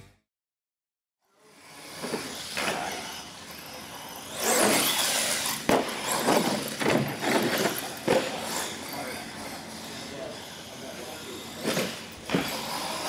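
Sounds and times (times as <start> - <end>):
toy truck motor and tyres: 1.2 - 13.0
truck hitting ramps and landing: 4.4 - 8.4, 11.6 - 13.0.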